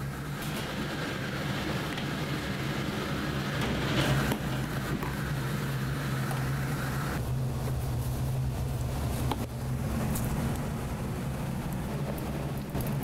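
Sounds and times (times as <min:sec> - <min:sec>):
kitchen machine hum: 0:00.0 - 0:13.0
rushing noise: 0:00.0 - 0:13.0.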